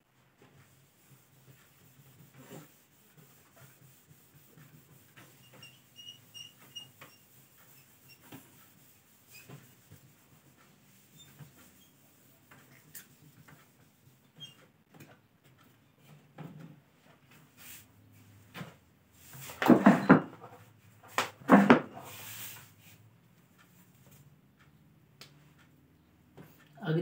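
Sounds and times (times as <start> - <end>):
cloth wiping a whiteboard: 0.4 - 14.7, 17.0 - 23.0.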